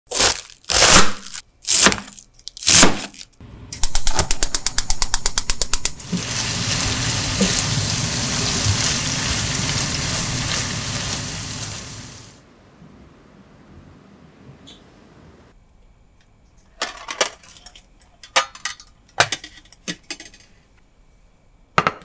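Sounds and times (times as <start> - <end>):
food sizzling in frying pan: 5.8 - 12.4.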